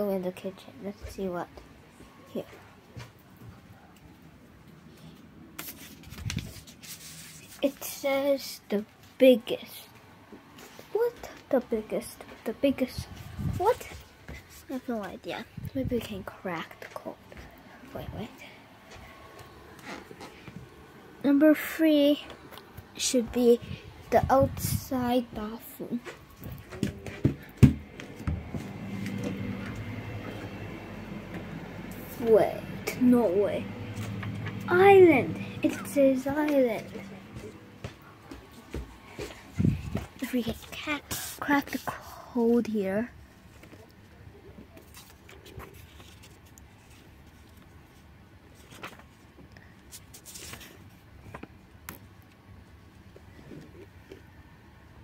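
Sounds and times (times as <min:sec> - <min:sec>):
steady low hum: 0:00.0 - 0:43.5
faint rustling and handling: 0:04.7 - 0:20.8, 0:43.2 - 0:54.3.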